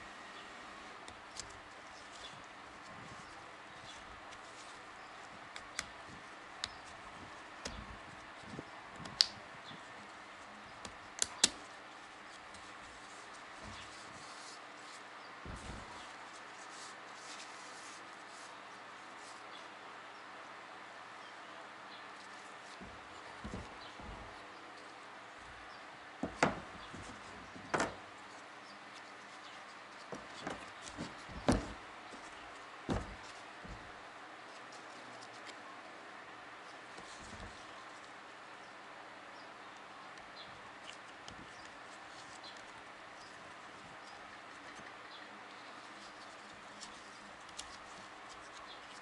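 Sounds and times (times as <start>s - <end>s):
metal parts knocking on rubber mat: 22.8s - 24.4s, 26.2s - 28.1s, 30.1s - 32.3s, 32.9s - 34.0s.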